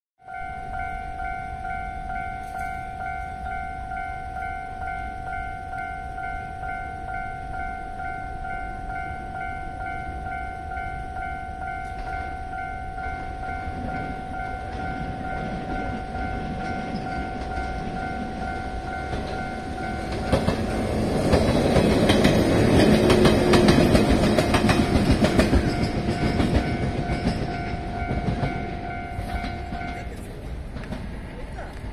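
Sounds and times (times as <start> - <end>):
level-crossing warning bell: 0.2 - 30.9
train wheels clattering over rail joints: 13.8 - 31.9.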